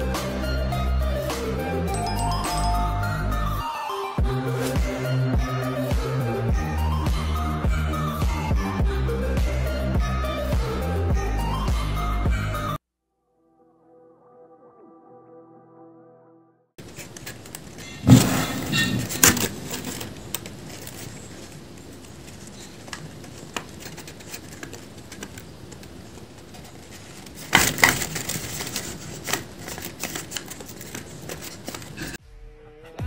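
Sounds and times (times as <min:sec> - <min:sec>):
paper crackling: 0:16.8 - 0:32.2
paper jaw clacking: 0:16.8 - 0:32.2.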